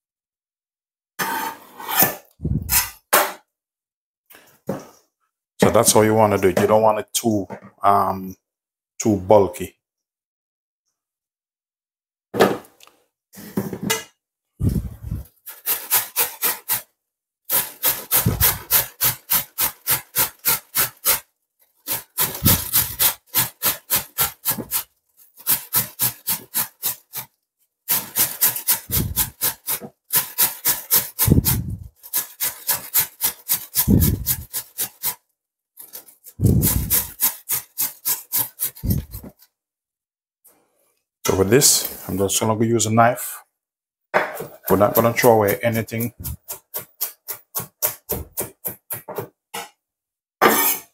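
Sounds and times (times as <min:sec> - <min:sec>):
cabbage rasping on a grater: 0:14.6 - 0:16.9, 0:17.5 - 0:27.3, 0:27.9 - 0:35.2, 0:35.8 - 0:39.4, 0:44.4 - 0:49.0.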